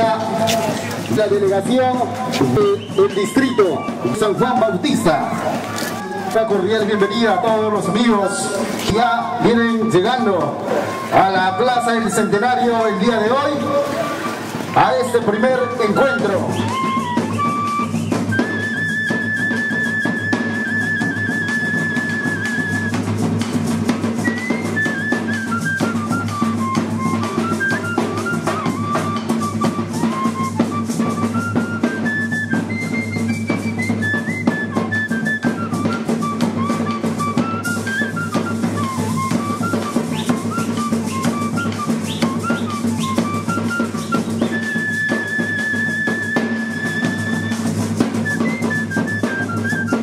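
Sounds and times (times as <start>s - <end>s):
steady drumming: 0.0s - 50.0s
whistle-like melody: 1.8s - 50.0s.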